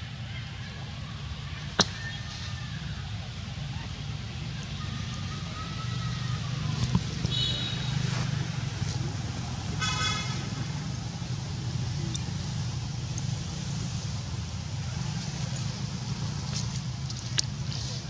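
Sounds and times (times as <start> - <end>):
road traffic hum: 0.0 - 18.0
vehicle horn toot: 7.3 - 8.0, 9.8 - 10.5.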